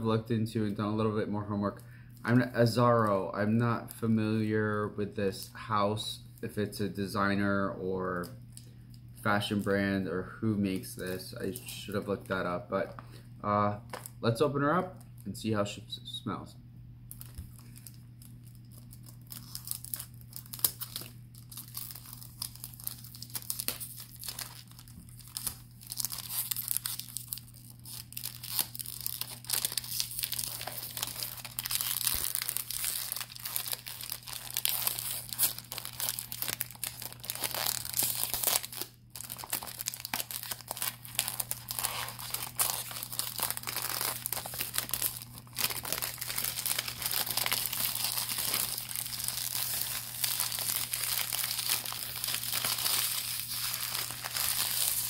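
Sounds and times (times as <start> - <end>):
cellophane crinkling and tearing: 17.1 - 55.0.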